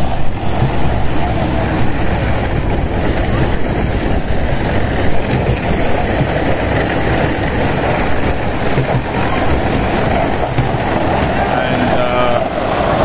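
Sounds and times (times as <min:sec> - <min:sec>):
machinery and conveyor running: 0:00.0 - 0:13.0.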